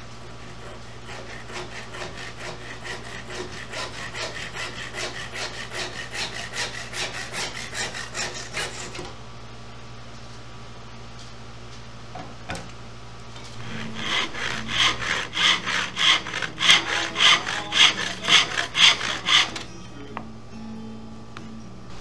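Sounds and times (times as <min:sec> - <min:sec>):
hand saw cutting wood: 0:00.2 - 0:09.1, 0:13.6 - 0:19.7.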